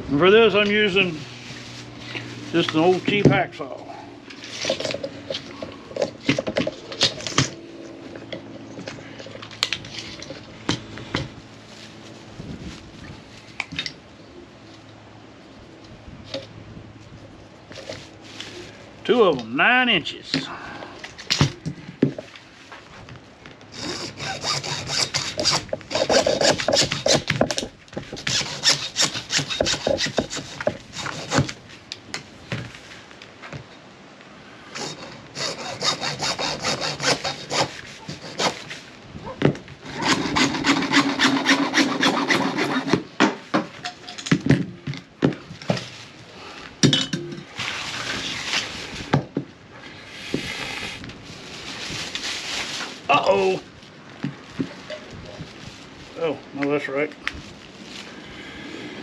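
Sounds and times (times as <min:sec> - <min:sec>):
hacksaw cutting plastic pipe: 0:23.7 - 0:31.6, 0:34.8 - 0:38.8, 0:39.8 - 0:43.4.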